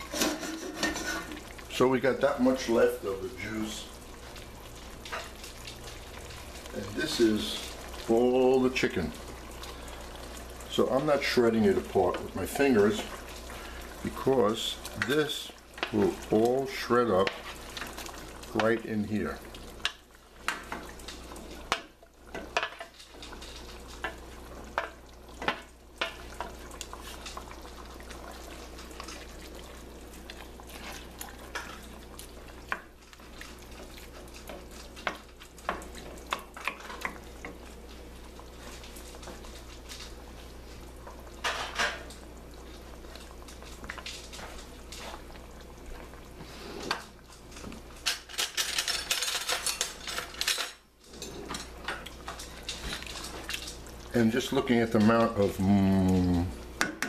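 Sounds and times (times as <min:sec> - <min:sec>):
wooden spoon scraping metal pot: 0:00.0 - 0:03.6
sauce sizzling: 0:00.0 - 0:57.0.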